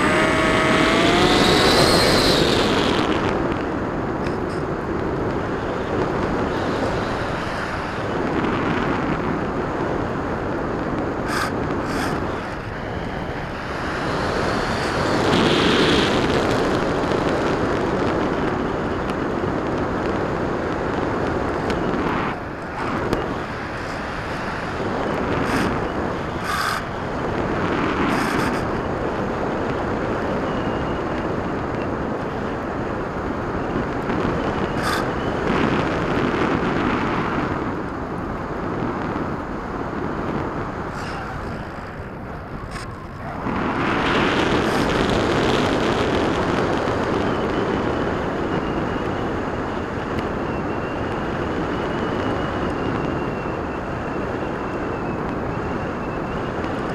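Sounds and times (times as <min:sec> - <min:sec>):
wind rushing over camera: 0:00.0 - 0:56.9.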